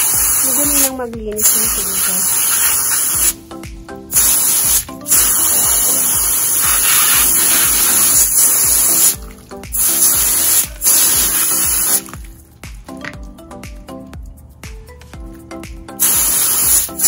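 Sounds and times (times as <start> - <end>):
hose nozzle spraying water: 0.0 - 3.4, 4.1 - 12.4, 16.0 - 17.0.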